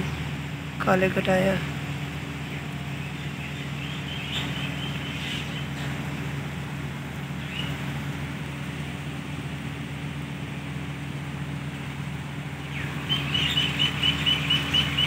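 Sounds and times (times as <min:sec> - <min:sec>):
birds chirping: 0:00.0 - 0:08.0, 0:12.5 - 0:15.0
low mechanical hum: 0:00.0 - 0:15.0.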